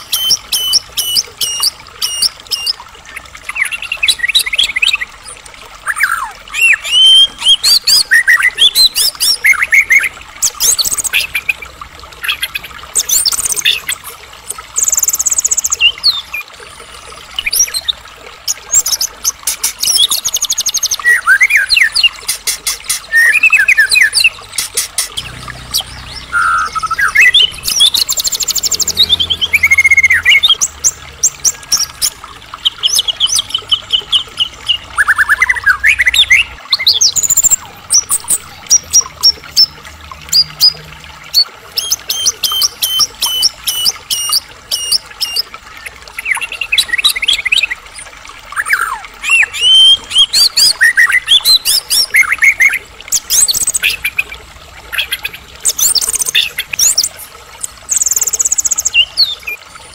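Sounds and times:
bird singing varied song: 22.9 - 39.7.

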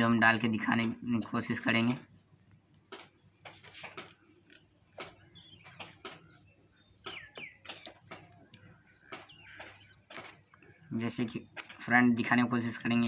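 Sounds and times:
small metallic clicks: 7.0 - 11.9.

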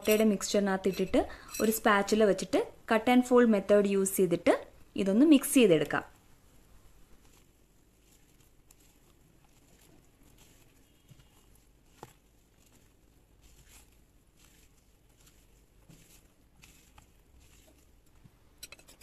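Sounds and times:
spatula scraping batter in bowl: 7.1 - 19.0.

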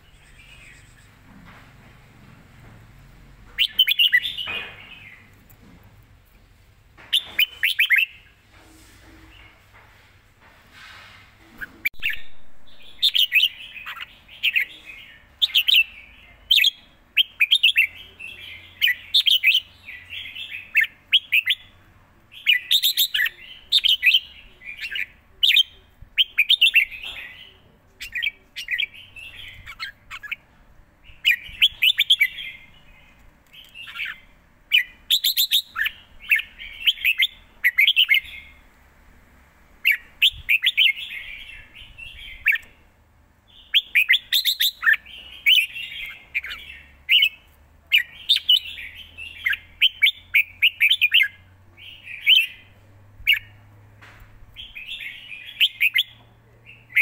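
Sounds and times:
bulbul singing: 3.5 - 5.5, 7.0 - 8.3, 11.6 - 38.6, 43.5 - 53.7, 54.5 - 57.0.

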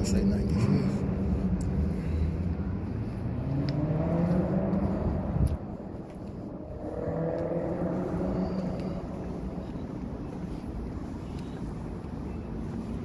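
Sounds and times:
vehicle engine revving: 0.5 - 10.1.

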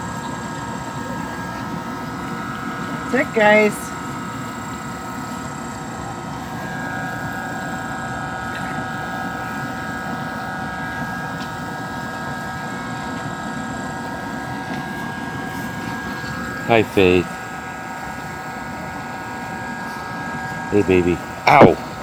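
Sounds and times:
mechanical drone: 0.0 - 22.0.

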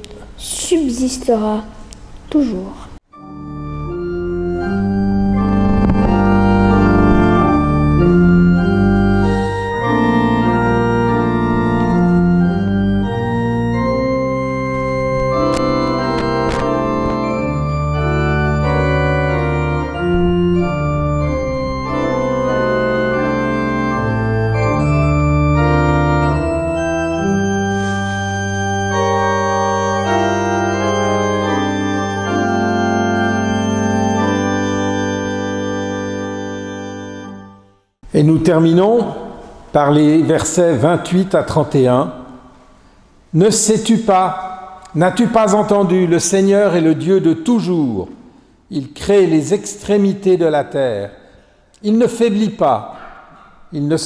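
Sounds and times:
pipe organ playing slow chords: 3.1 - 37.8.

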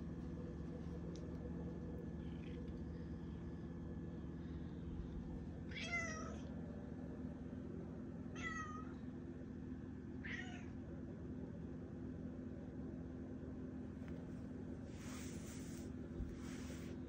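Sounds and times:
steady low hum: 0.0 - 17.0
cat meowing: 10.2 - 10.7.

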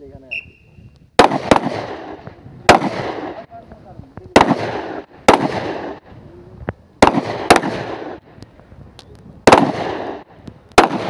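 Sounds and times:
pistol shots with echo: 1.2 - 3.4, 4.3 - 6.0, 7.0 - 8.2, 9.4 - 11.0.

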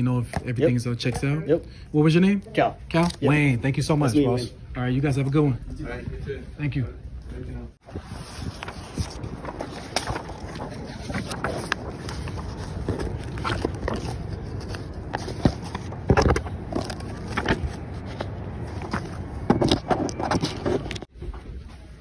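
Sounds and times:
rustling and clicking of phone handling: 8.5 - 21.1.

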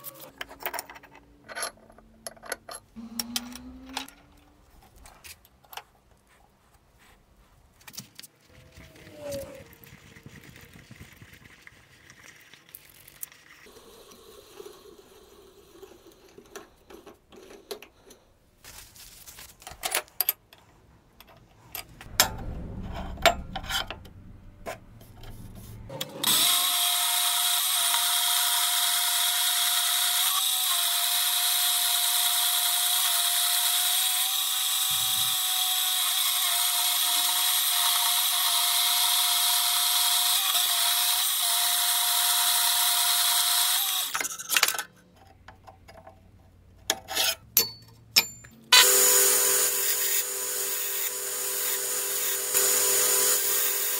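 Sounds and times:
metal-cutting bandsaw whining: 25.9 - 44.3, 48.7 - 53.9.

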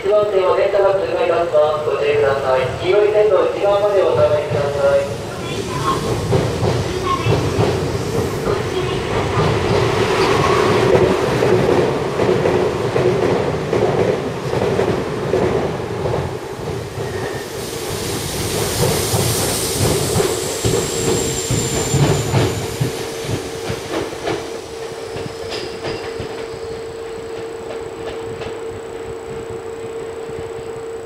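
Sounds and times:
electric train hum: 0.0 - 31.0
high hiss: 17.0 - 29.1.

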